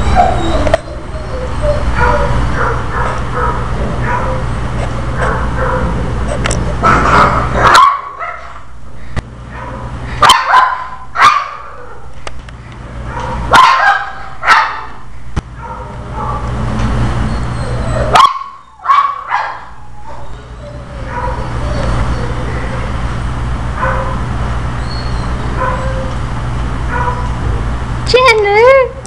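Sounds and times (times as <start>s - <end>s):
dog growling and barking: 0.0s - 8.7s
steady low hum: 0.0s - 29.0s.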